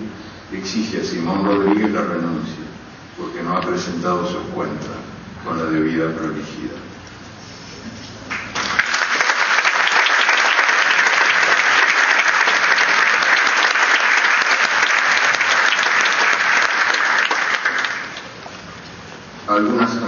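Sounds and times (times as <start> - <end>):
audience applauding: 8.3 - 18.4.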